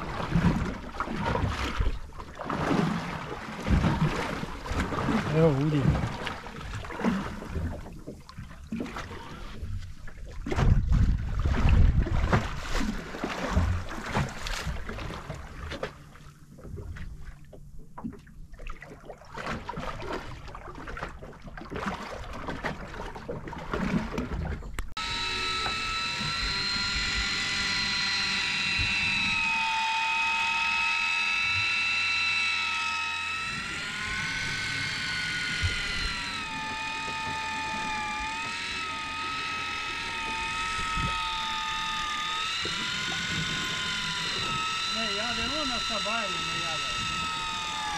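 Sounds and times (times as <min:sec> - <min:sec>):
water noise: 0:00.0 - 0:47.9
wind: 0:00.0 - 0:47.9
electric fishing reel motor whine: 0:03.7 - 0:07.8, 0:25.0 - 0:47.9.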